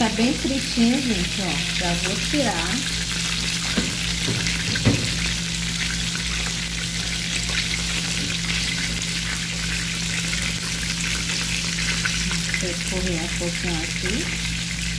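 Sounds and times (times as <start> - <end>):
chicken deep-frying in oil: 0.0 - 14.9.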